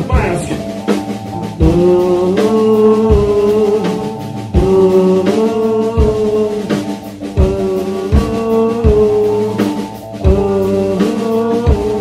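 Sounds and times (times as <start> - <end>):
kick drum steady beat: 0.0 - 2.2
drum kit: 0.0 - 12.0.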